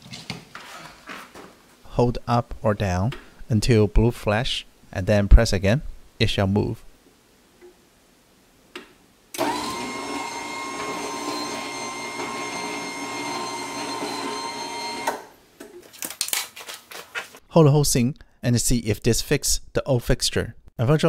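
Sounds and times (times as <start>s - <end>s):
garage door opener motor whine: 9.4s - 15.4s.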